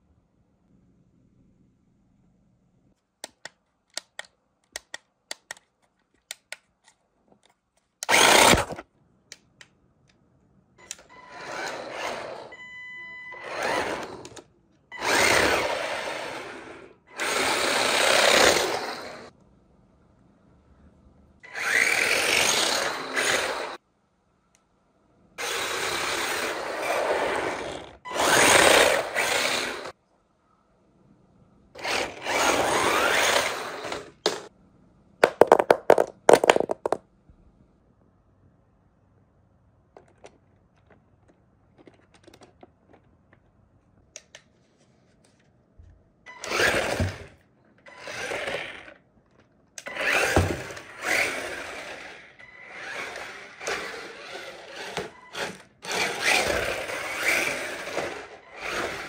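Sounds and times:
small electric motor whirring: 8.0s - 8.8s, 11.2s - 12.6s, 13.3s - 14.4s, 15.0s - 19.3s, 21.4s - 23.8s, 25.4s - 30.0s, 31.8s - 34.3s, 46.4s - 49.0s, 49.8s - 59.0s.

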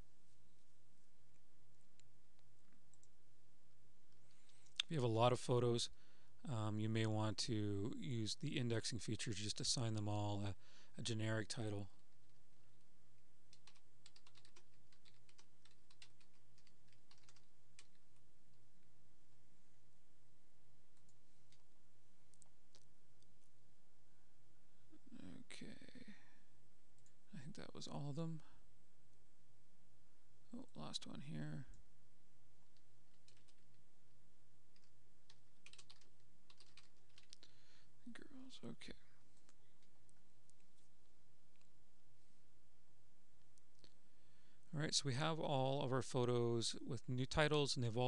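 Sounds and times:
low steady hum: 0.0s - 48.0s
keyboard typing: 13.5s - 18.2s, 32.7s - 33.8s, 34.7s - 37.5s.

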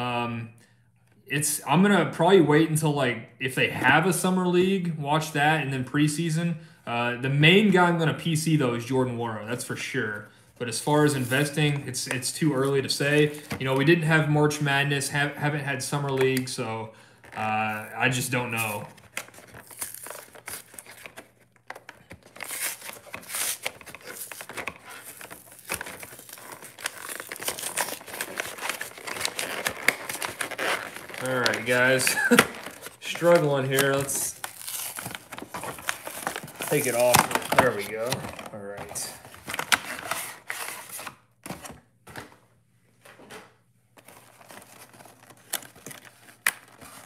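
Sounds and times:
packaging crinkling and rustling: 16.1s - 42.4s, 44.0s - 47.0s.

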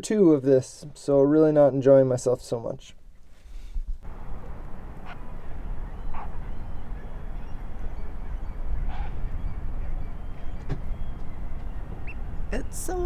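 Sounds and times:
wind rumbling on microphone: 3.5s - 13.0s
short bird calls: 4.8s - 12.6s.

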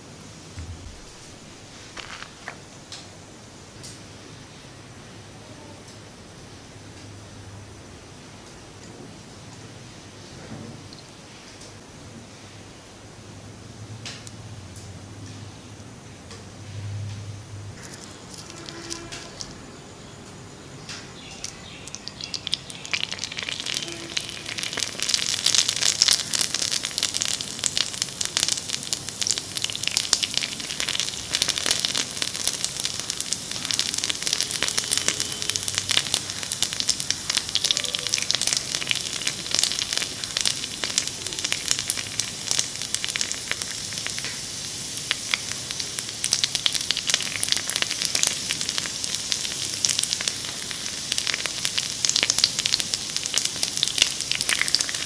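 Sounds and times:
batter sizzling in hot oil: 0.3s - 4.3s, 17.7s - 19.6s, 21.2s - 55.0s.

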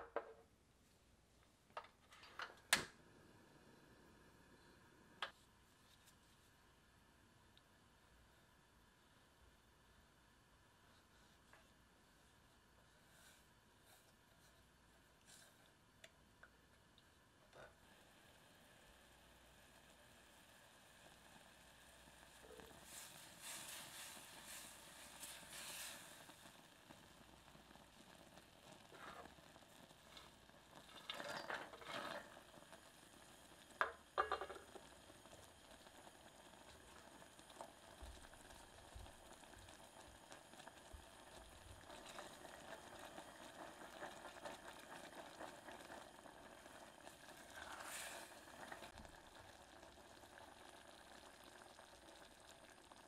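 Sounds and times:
caramel bubbling sizzle: 12.4s - 53.0s.

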